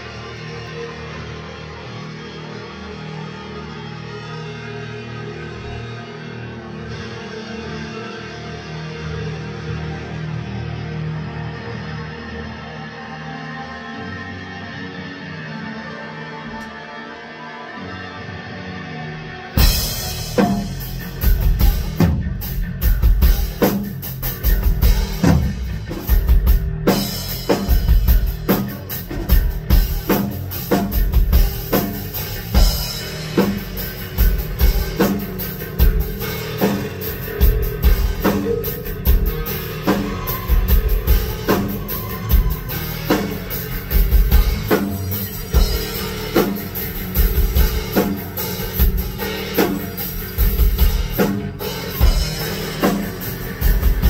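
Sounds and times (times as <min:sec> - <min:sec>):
rock band playing: 0:00.0 - 0:16.4, 0:18.2 - 0:54.0
heavy low bass lines: 0:19.1 - 0:54.0.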